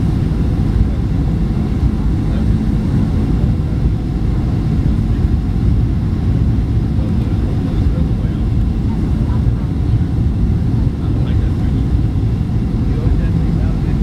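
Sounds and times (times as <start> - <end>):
airplane cabin engine rumble: 0.0 - 14.0.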